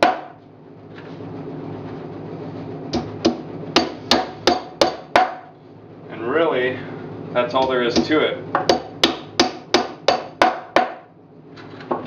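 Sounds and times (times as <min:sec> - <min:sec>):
hammer striking nails into wood: 0:03.0 - 0:05.4, 0:08.0 - 0:11.1.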